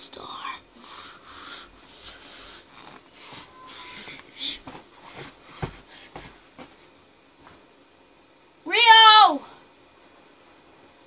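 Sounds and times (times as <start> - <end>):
child puffing breath: 0.8 - 6.6.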